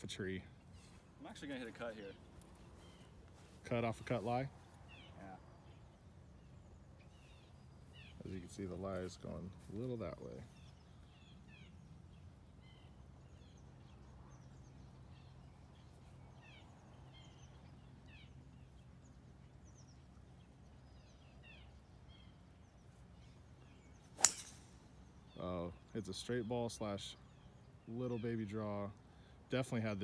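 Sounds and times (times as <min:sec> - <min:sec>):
birds chirping: 0:00.0 - 0:30.0
golf club striking ball: 0:24.2 - 0:25.0.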